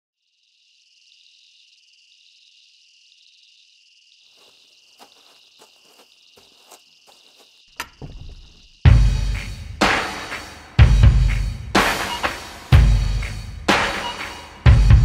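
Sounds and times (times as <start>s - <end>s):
crickets chirring: 0.2s - 14.7s
footsteps approaching: 4.3s - 8.8s.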